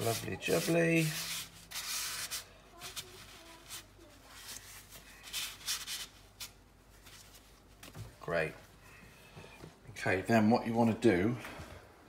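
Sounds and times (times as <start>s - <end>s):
paper towel rubbing a skillet: 0.0s - 7.4s.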